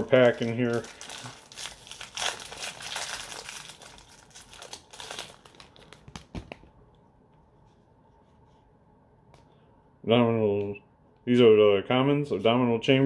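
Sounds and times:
plastic wrapper crinkling: 0.0 - 6.7.

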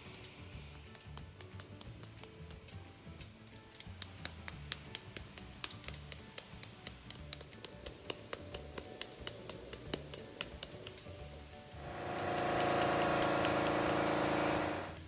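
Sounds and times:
background music: 0.0 - 15.0
powder coating gun spraying: 11.8 - 15.0.

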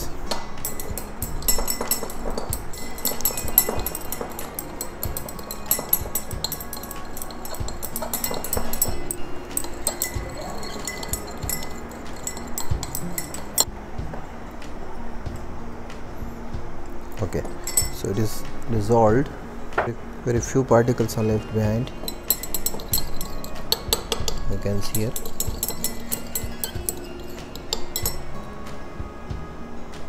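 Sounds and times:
glass beaker clinking: 0.0 - 13.7, 17.2 - 18.4, 21.1 - 28.5.

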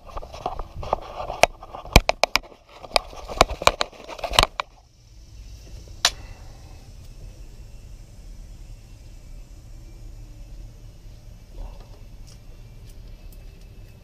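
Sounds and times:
sharp handling clicks and knocks: 0.0 - 4.8
low steady hum: 0.0 - 14.0.

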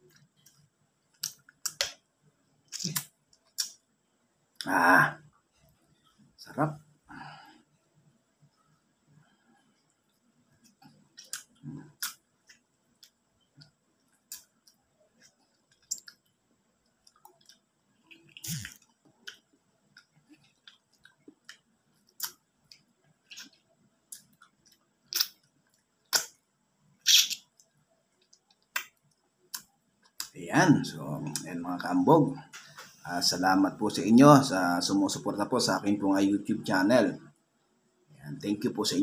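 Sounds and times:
wet mouth smacks eating mango: 2.7 - 3.8, 25.1 - 25.4, 26.1 - 26.4, 27.0 - 27.6.

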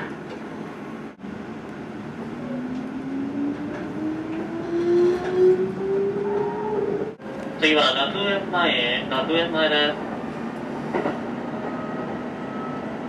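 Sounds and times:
train running gear rumble: 0.0 - 13.0
traction motors whining: 2.2 - 7.2.

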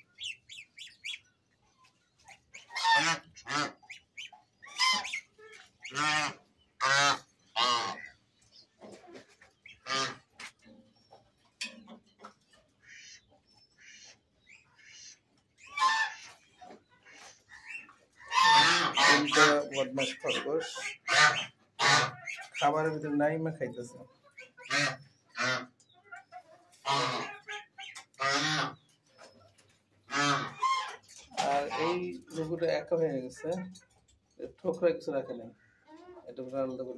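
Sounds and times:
geese honking: 0.0 - 1.3, 2.2 - 8.2, 9.0 - 10.6, 12.8 - 29.0, 30.0 - 32.6.

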